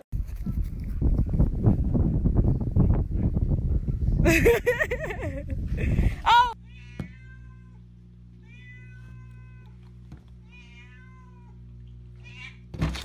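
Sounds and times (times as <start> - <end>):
steady low hum: 0.2 - 13.0
cat meowing: 6.7 - 7.8, 8.4 - 9.8, 10.4 - 11.6, 12.2 - 12.7.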